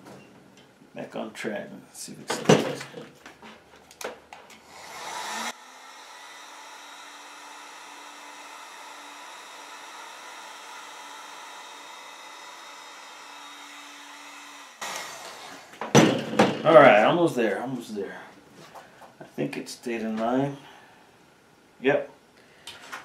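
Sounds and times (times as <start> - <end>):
hot-air blower running: 4.6 - 16.6.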